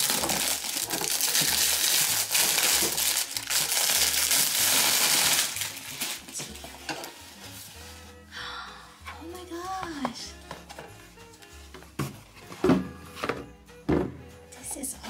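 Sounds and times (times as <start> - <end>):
plastic wrap crinkling: 0.0 - 8.2.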